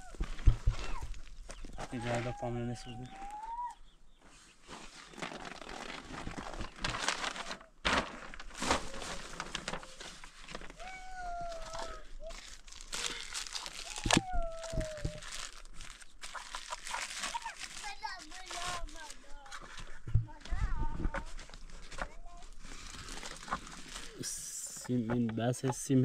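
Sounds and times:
crinkling rustle: 0.0s - 24.9s.

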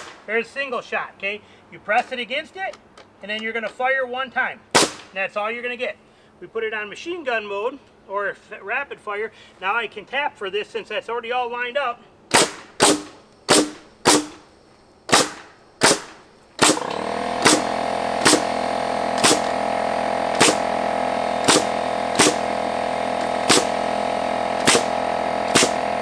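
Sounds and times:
nail gun shots into wood: 0.0s - 0.3s, 4.7s - 5.2s, 12.3s - 14.5s, 15.1s - 19.6s, 20.3s - 20.8s, 21.4s - 22.6s, 23.2s - 23.9s, 24.6s - 26.0s
steady motor hum: 12.8s - 26.0s.

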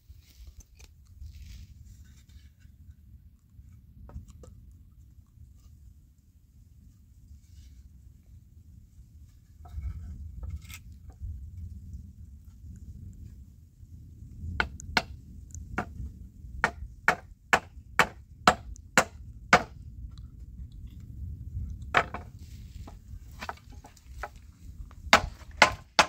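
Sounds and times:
hammer striking nails into wood: 16.6s - 19.8s, 25.1s - 26.0s.

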